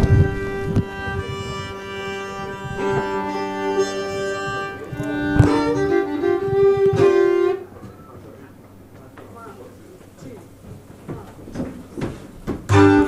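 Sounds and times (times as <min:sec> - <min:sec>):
fiddle bowing long notes: 0:00.0 - 0:08.2, 0:12.7 - 0:13.0.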